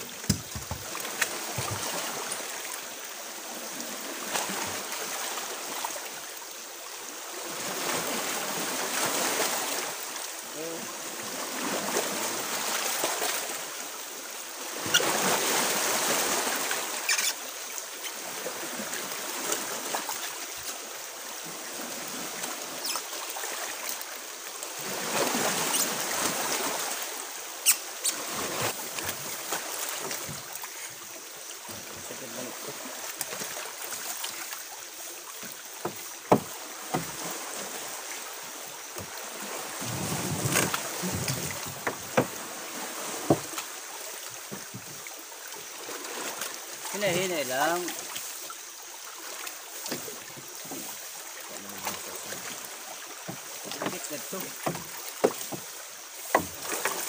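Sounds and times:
water lapping against boat hull: 0.0s - 6.2s, 14.6s - 57.0s
sharp knocks on boat: 0.2s - 2.0s, 35.4s - 37.2s, 40.1s - 42.4s, 43.2s - 43.7s, 53.2s - 57.0s.

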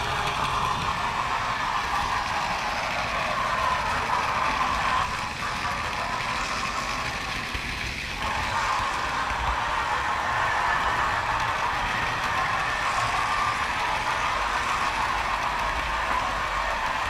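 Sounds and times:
model train wheels rolling: 0.0s - 17.0s.

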